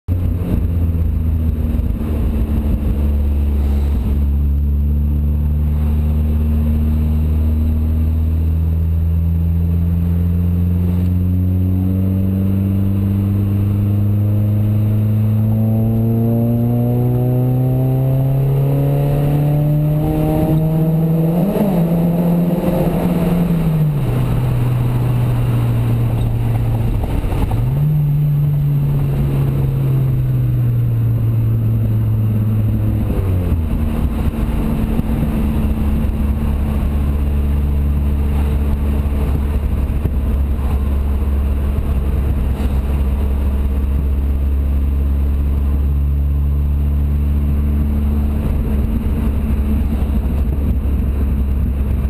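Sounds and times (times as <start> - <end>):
car engine revving: 0.1 - 52.0.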